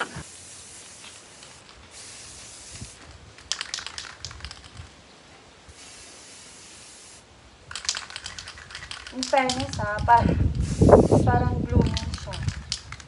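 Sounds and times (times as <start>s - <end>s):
spray can hissing: 0.0s - 4.8s, 5.7s - 13.0s
sharp clicks: 3.4s - 4.9s, 7.7s - 11.0s, 11.8s - 13.0s.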